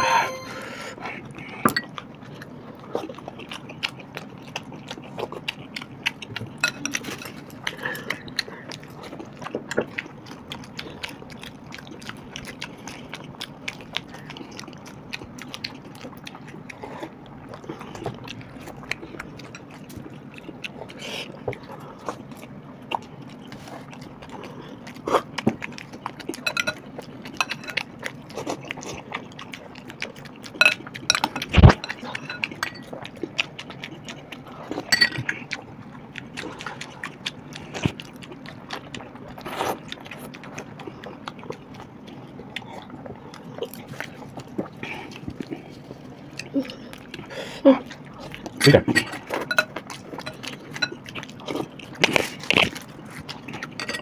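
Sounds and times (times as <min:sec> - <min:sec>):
fingers and spoon tapping bowls: 0:00.0 - 0:00.6, 0:26.5 - 0:27.8, 0:30.6 - 0:32.8, 0:48.9 - 0:51.0
people chewing: 0:00.0 - 0:54.0.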